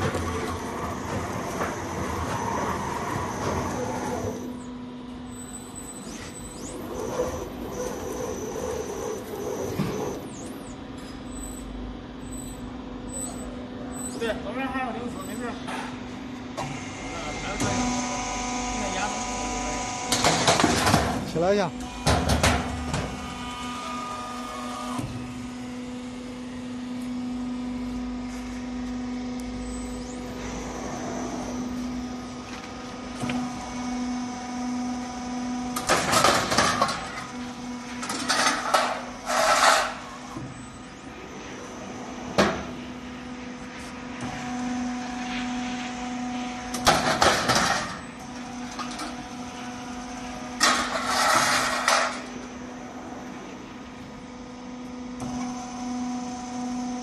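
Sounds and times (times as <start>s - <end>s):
machine motors humming: 0.0s - 57.0s.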